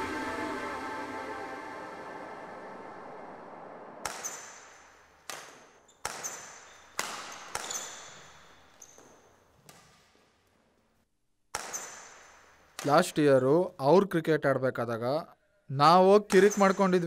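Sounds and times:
rackets hitting shuttlecock: 4.0 - 10.1, 11.5 - 13.0, 16.3 - 17.0.

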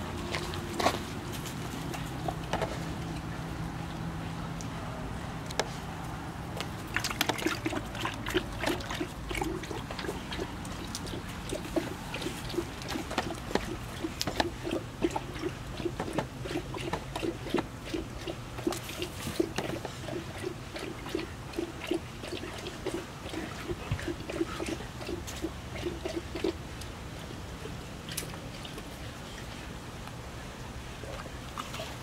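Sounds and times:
dog licking: 6.8 - 26.6.

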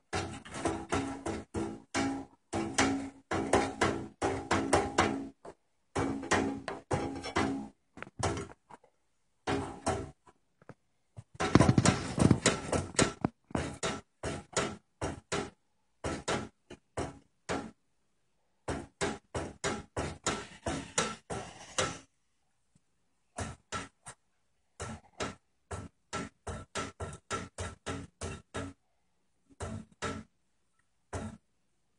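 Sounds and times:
window blind slats clattering: 11.4 - 15.5.

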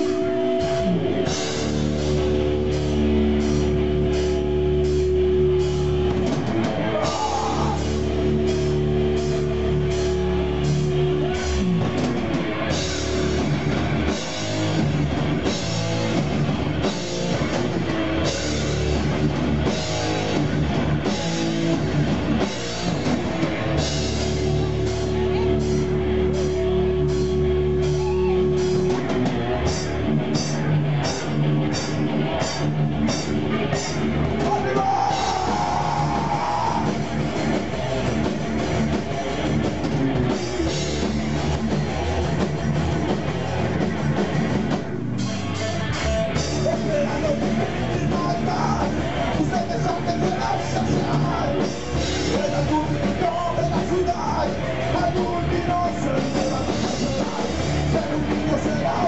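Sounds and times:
distorted electric guitars: 0.0 - 59.0
drum kit: 0.0 - 59.0
person singing: 6.8 - 8.0, 34.4 - 37.0, 46.6 - 59.0.

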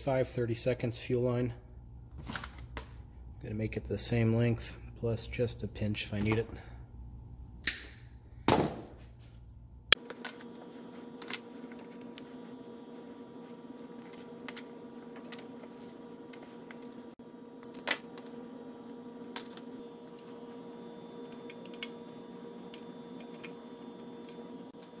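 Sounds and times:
steady electrical hum: 0.0 - 25.0.

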